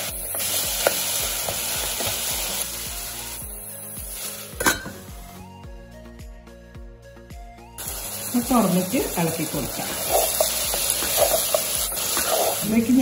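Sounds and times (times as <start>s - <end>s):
chicken sizzling in a frying pan: 0.0s - 5.0s, 7.8s - 13.0s
background music: 0.0s - 13.0s
spatula scraping pan: 9.7s - 12.7s.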